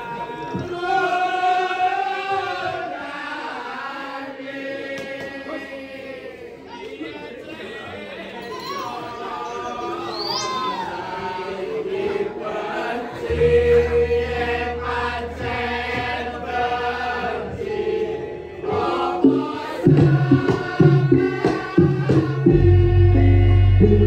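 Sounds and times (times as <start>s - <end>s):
gamelan ensemble with singing: 8.3s - 24.0s
deep gong ringing: 13.3s - 16.9s.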